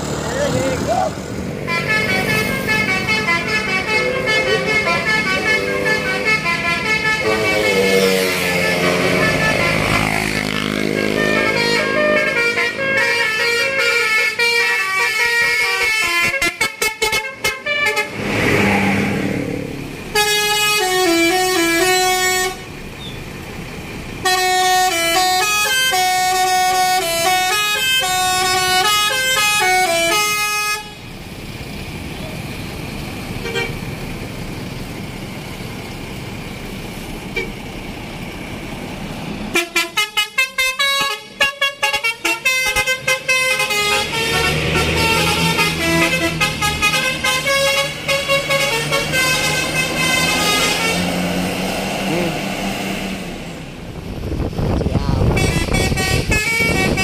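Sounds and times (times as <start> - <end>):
musical bus horns: 1.5 - 23.2, 24.2 - 31.2, 33.4 - 33.9, 37.3 - 37.6, 39.4 - 53.4, 55.1 - 57.0.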